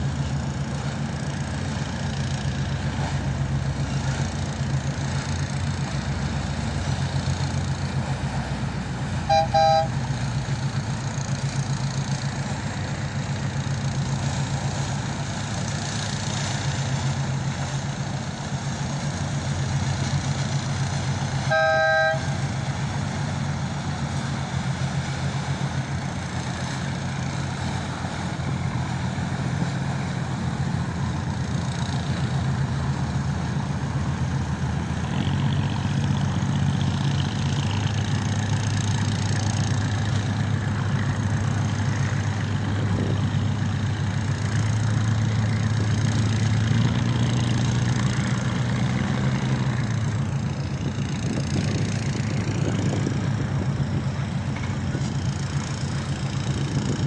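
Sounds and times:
low engine drone: 0:00.0 - 0:57.0
two-tone horn toots: 0:09.2 - 0:10.0, 0:21.4 - 0:22.6.

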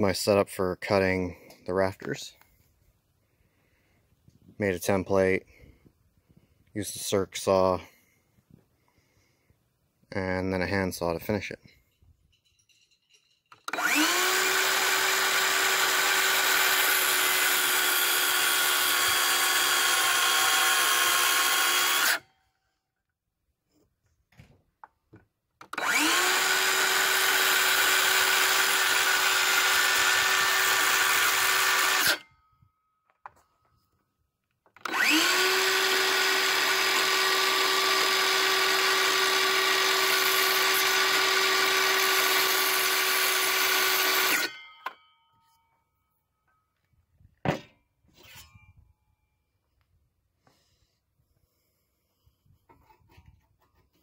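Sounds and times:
circular saw whining through wood: 0:13.5 - 0:22.4, 0:25.6 - 0:32.4, 0:34.8 - 0:45.1.

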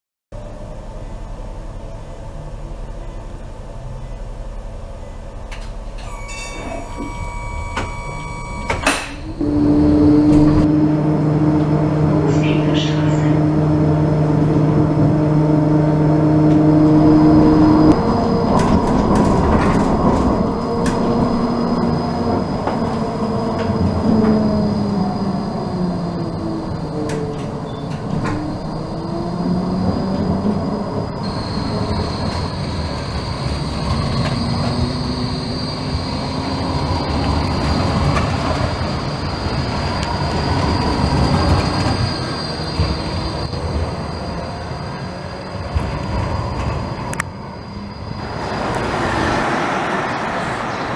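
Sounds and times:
electric tram motor whine: 0:00.4 - 0:50.9
wheel and rail rumble: 0:00.4 - 0:50.9
thin high whine: 0:06.0 - 0:10.8.

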